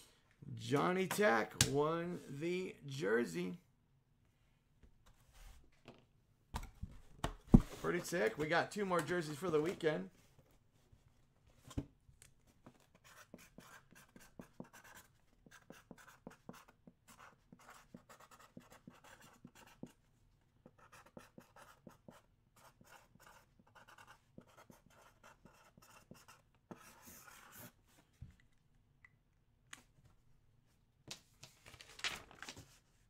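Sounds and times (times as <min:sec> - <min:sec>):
marker pen scratching on wood: 0:12.9 - 0:20.0, 0:20.6 - 0:27.8.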